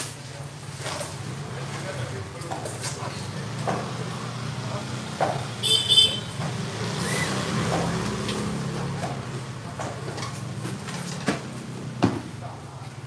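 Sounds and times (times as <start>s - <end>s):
vehicle engine droning: 1.0s - 13.0s.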